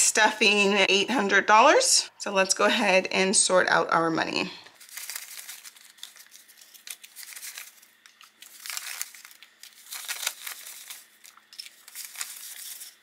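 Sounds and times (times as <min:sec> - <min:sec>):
paper money rustling: 0:04.8 - 0:13.0.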